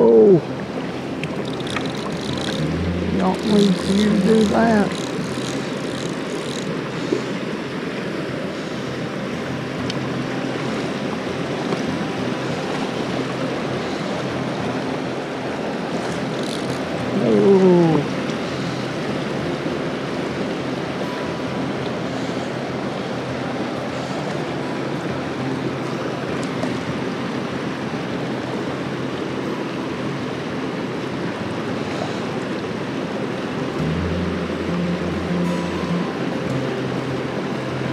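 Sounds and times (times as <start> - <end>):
mountain stream rushing over rocks: 0.0 - 37.9.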